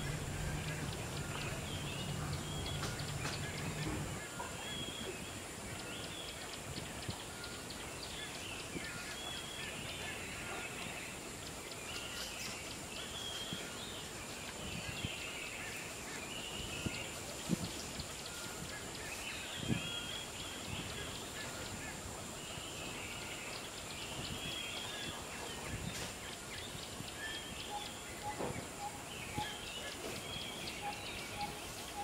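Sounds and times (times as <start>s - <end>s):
low hum: 0.0s - 4.2s
wild birds chirping: 0.0s - 32.0s.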